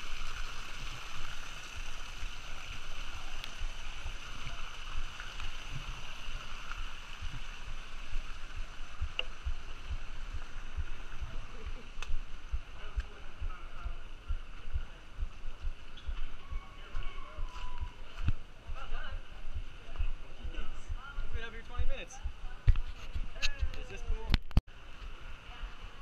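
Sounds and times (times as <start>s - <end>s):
water rushing: 0.0s - 16.9s.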